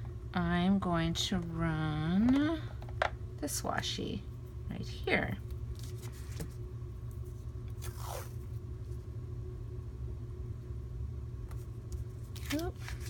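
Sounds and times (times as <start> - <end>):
low background hum: 0.0 - 13.0
tape scraping on paper: 7.7 - 8.4.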